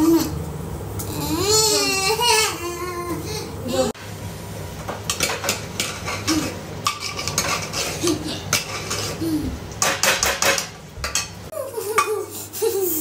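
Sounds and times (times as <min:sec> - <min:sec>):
metal spoon scraping a pot: 0:05.1 - 0:09.2.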